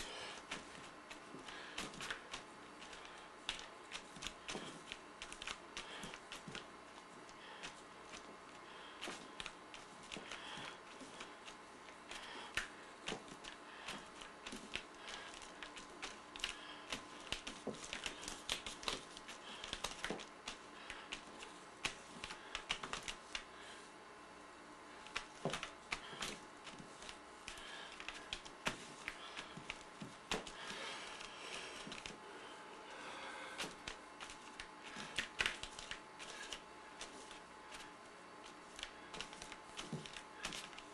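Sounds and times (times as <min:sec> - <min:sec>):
fingertips tapping paint on canvas: 0:07.3 - 0:23.6, 0:25.0 - 0:32.2.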